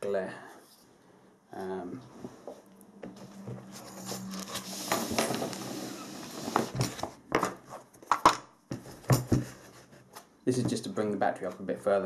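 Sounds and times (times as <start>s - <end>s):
boards scraping on tabletop: 2.2s - 7.8s.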